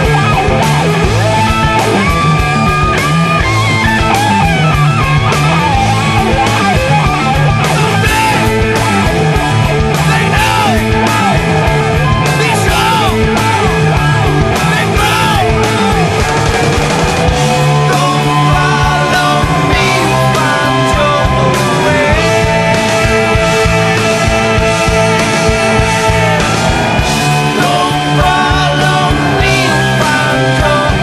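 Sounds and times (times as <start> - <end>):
electric guitar lead bending notes: 0.0 - 31.0
hard rock band playing: 0.0 - 31.0.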